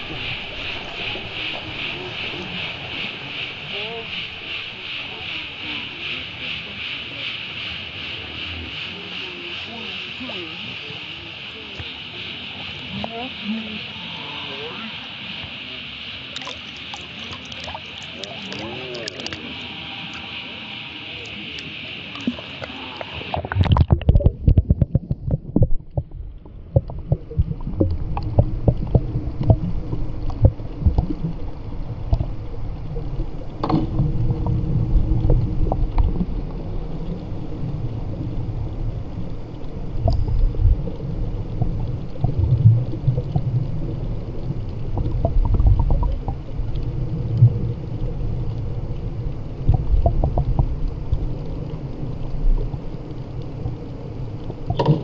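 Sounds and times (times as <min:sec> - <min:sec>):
underwater rumble of moving water: 0:00.0 - 0:55.0
underwater clicks and knocks: 0:16.4 - 0:19.4, 0:22.2 - 0:37.2, 0:39.5 - 0:48.7, 0:49.6 - 0:55.0.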